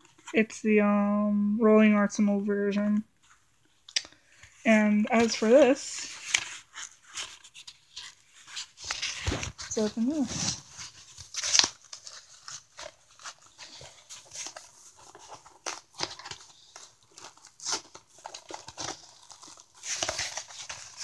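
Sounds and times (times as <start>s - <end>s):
package tearing: 6.2s - 21.0s.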